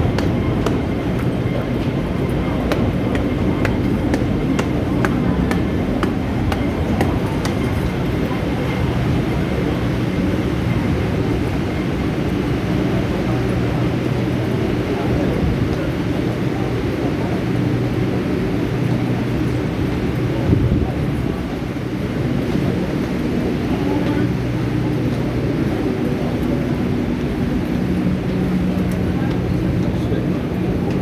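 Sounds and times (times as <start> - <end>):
footstep clicks: 0.0 - 8.0
faint murmur of voices: 0.0 - 31.0
low rumble and hum: 0.0 - 31.0.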